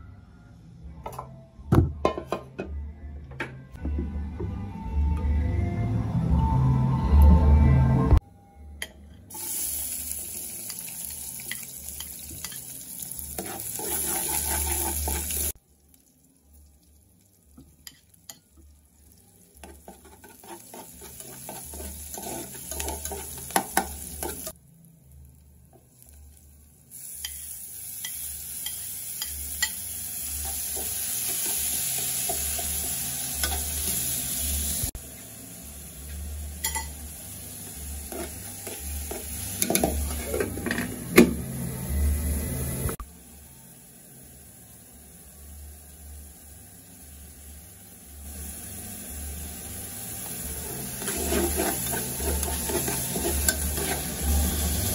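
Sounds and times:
vegetables sizzling in hot oil: 0:09.3 - 0:40.7, 0:42.9 - 0:54.9
metal spoon scraping pot: 0:13.4 - 0:15.5, 0:19.6 - 0:24.5, 0:38.0 - 0:40.9, 0:50.7 - 0:54.2.

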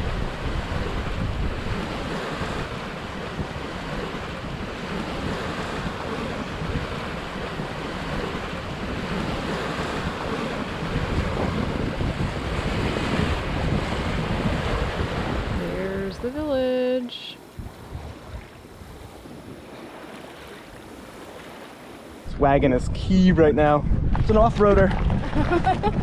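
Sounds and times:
water rushing along hull: 0:00.0 - 0:22.4, 0:23.4 - 0:26.0
wind buffeting microphone: 0:00.0 - 0:26.0.

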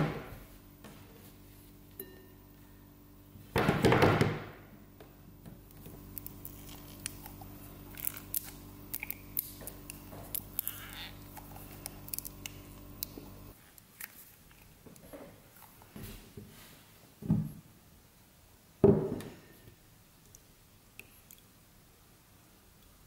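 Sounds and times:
steady low hum: 0:00.0 - 0:16.3.

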